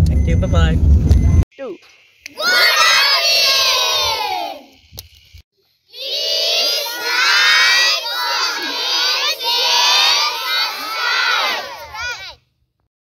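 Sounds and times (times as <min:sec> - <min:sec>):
children shouting and cheering: 0:02.3 - 0:04.8, 0:05.9 - 0:12.5.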